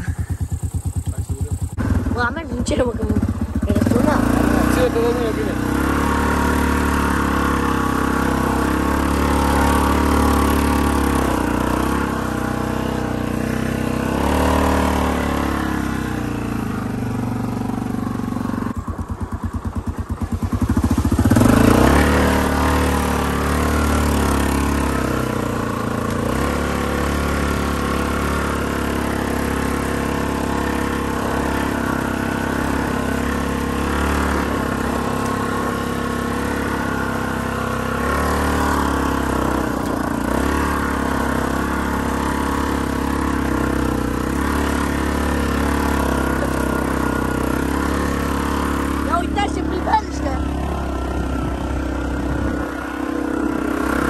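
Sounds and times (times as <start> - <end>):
atv engine running under load: 0.0 - 54.0.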